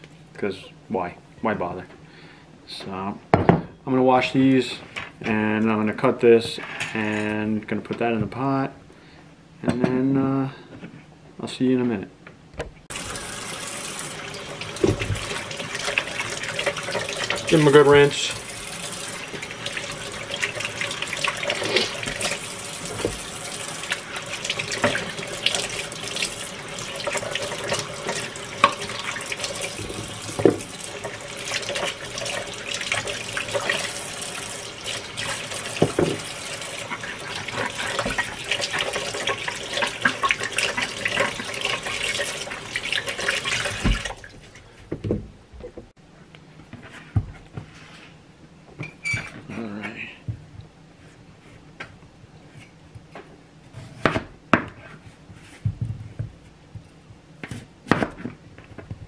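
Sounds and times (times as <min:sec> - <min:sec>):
faucet running into sink: 0:12.9 - 0:44.4.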